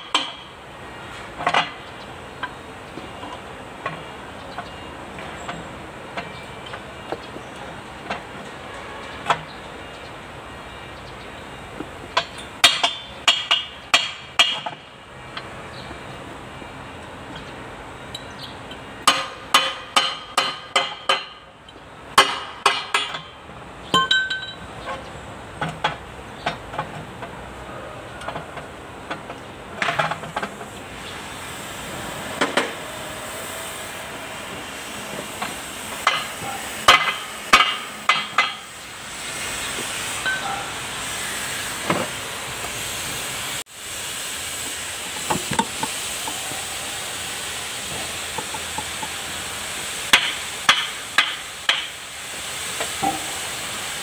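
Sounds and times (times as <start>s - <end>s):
hammer striking steel: 12.2s - 14.8s, 19.0s - 21.5s, 22.1s - 23.4s, 24.0s - 24.6s, 35.4s - 38.8s, 40.2s - 40.7s, 50.1s - 52.0s.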